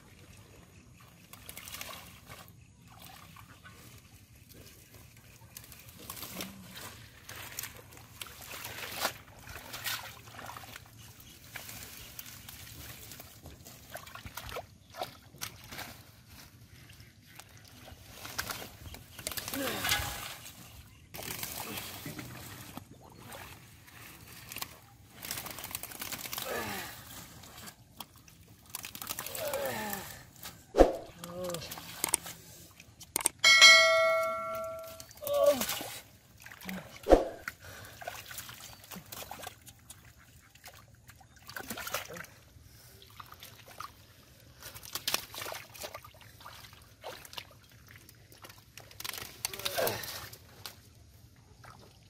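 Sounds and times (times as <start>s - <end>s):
muddy water splashing and sloshing: 0.0s - 33.3s, 34.0s - 52.0s.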